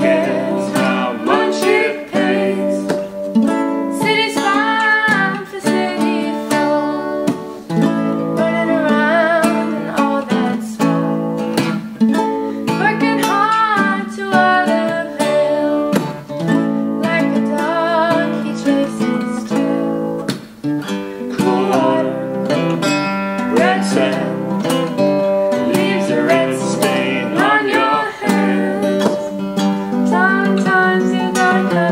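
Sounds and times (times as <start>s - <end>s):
woman singing: 0.0s - 3.2s, 3.8s - 7.6s, 8.2s - 11.1s, 12.6s - 16.2s, 17.0s - 20.1s, 21.3s - 22.6s, 23.5s - 24.5s, 25.6s - 31.9s
acoustic guitar strumming: 0.0s - 31.9s
ukulele strumming: 0.0s - 31.9s.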